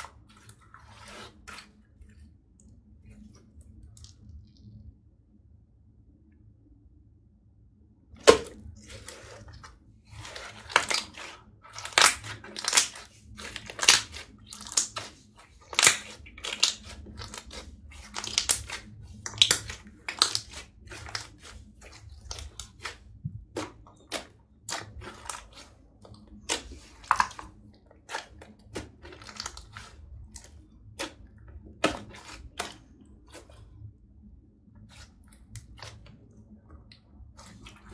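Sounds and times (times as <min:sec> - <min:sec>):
slime squelching and popping: 0:08.2 - 0:33.8, 0:34.8 - 0:37.9.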